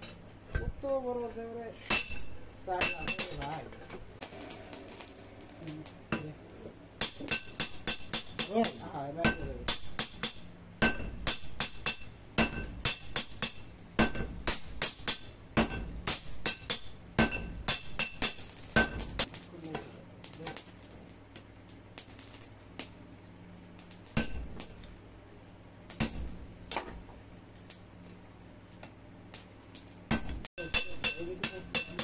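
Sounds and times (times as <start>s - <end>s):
hammer striking steel on anvil: 1.8s - 3.6s, 7.0s - 20.7s, 24.1s - 24.9s, 25.9s - 27.0s, 30.1s - 32.0s.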